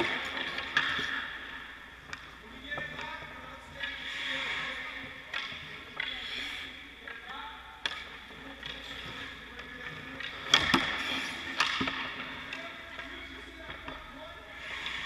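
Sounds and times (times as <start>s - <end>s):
hockey stick hitting puck: 0.0s - 6.2s, 7.8s - 14.2s
puck hitting goalie pads: 7.8s - 14.1s.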